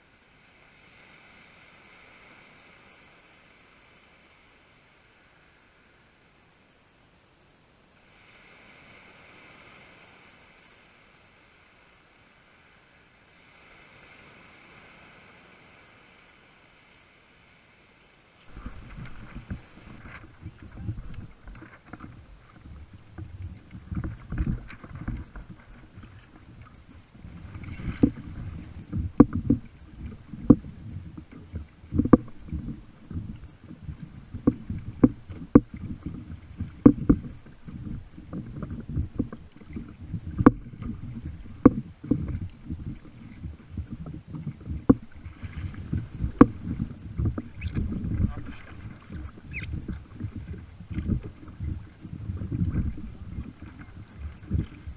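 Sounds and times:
low rumble of moving water: 0.0s - 54.9s
water slapping against kayak hull: 18.4s - 54.9s.

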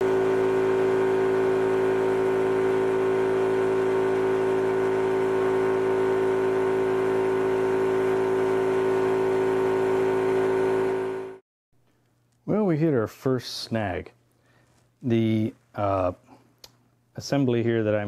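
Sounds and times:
air compressor hum: 0.0s - 11.4s.

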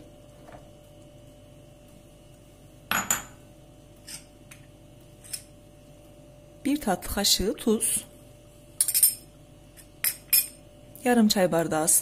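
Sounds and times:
kitchenware clinking: 2.9s - 3.4s, 8.8s - 10.6s.

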